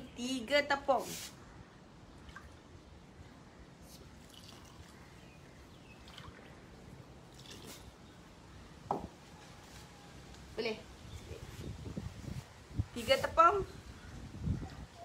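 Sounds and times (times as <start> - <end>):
faint water trickles: 1.6 - 8.8.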